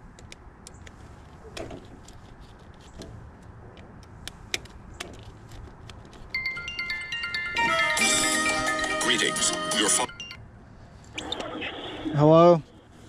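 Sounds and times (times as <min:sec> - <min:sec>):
mobile phone ringtone: 0:06.4 - 0:10.5.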